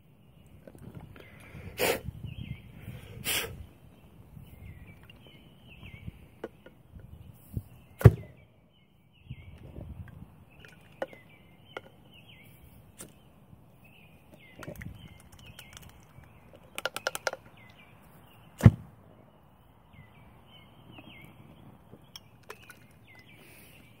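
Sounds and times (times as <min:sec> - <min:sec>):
rattle of quick taps: 0:14.3 - 0:17.7.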